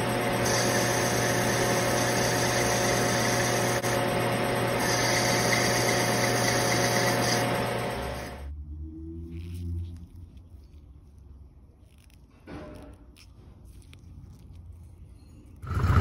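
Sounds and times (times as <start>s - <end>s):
metal lathe humming: 0.0s - 8.5s
hiss of cutting metal: 0.4s - 3.8s.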